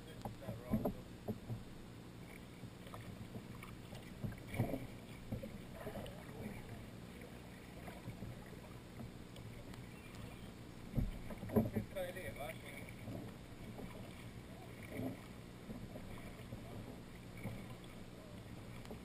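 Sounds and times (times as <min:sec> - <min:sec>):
paddle splashing in water: 0:00.0 - 0:19.0
water dripping from paddle: 0:02.2 - 0:11.9.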